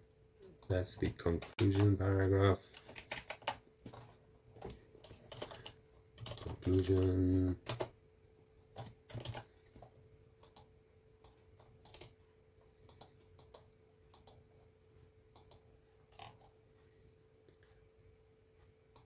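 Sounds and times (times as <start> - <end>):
faint steady hum: 0.0 - 19.0
keyboard and mouse clicks: 0.6 - 2.0, 2.8 - 7.9, 8.8 - 12.2, 12.9 - 14.4, 15.3 - 16.5.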